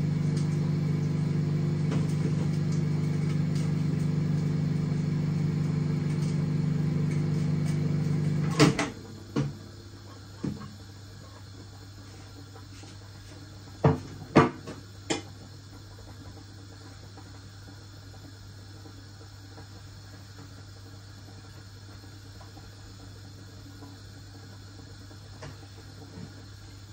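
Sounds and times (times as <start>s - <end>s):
kitchen appliance motor hum: 0.0s - 18.2s.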